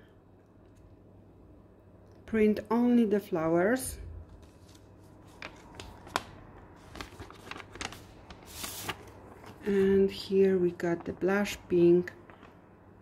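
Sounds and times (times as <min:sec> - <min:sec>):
paper rustling: 0:04.3 - 0:12.6.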